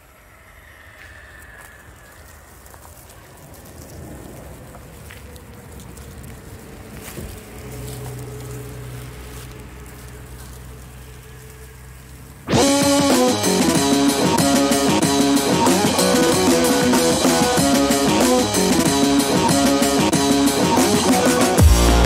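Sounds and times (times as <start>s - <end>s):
rustling noise: 1.0s - 13.6s
rock music with electric guitar: 12.5s - 22.0s.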